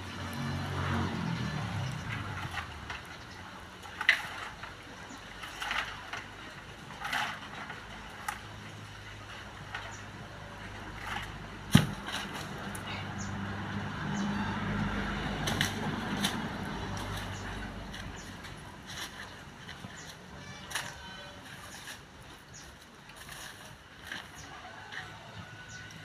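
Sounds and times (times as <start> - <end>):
scrapes and knocks on tree trunk: 1.8 - 8.7, 9.4 - 13.2, 15.4 - 25.9
sharp thud: 11.7 - 12.1.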